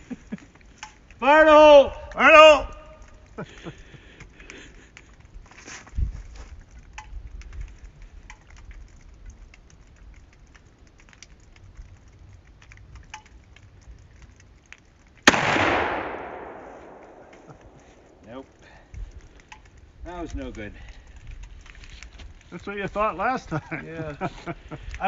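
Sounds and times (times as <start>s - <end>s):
rifle shot with echo: 15.3s - 18.2s.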